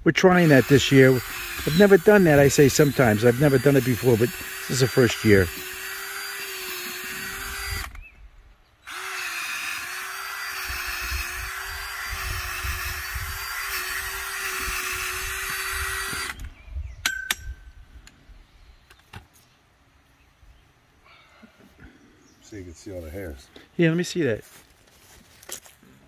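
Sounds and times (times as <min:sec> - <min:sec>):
cordless drill boring into soil: 0:00.0 - 0:08.2, 0:08.8 - 0:16.6.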